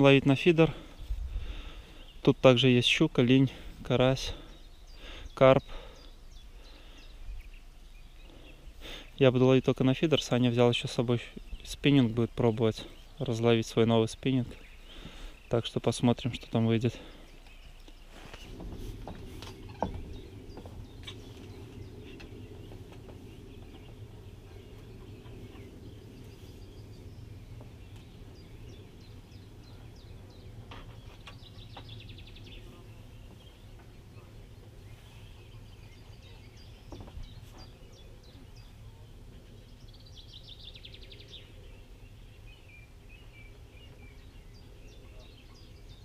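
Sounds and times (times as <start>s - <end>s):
songbird trilling: 17.1s - 46.0s
low rumble: 18.0s - 46.0s
faint knocks: 18.5s - 25.7s.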